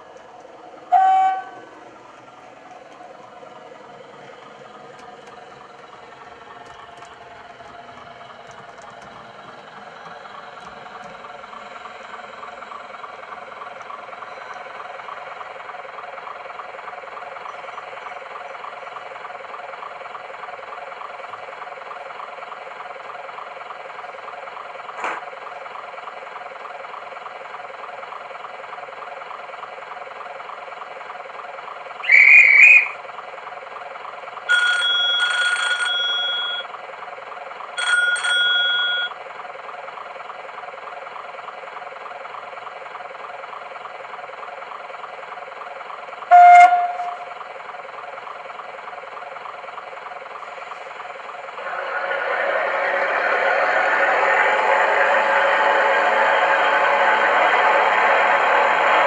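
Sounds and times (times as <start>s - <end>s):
model train engine drone: 0.0s - 24.8s, 30.7s - 33.2s, 34.4s - 39.1s, 46.1s - 59.0s
train horn blasts: 0.9s - 1.6s, 46.3s - 47.3s
warbling whistle: 32.0s - 33.0s.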